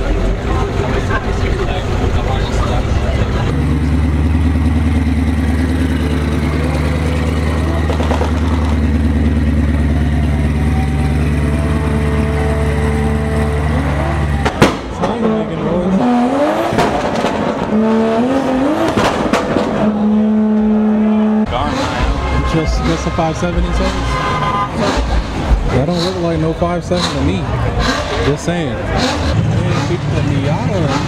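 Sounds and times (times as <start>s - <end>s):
car engine pulling away: 0.0s - 31.0s
car engine revving: 0.0s - 31.0s.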